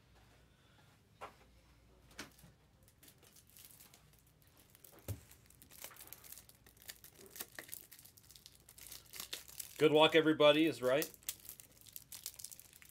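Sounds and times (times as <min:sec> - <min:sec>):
packaging crinkling and tearing: 0:02.9 - 0:12.9.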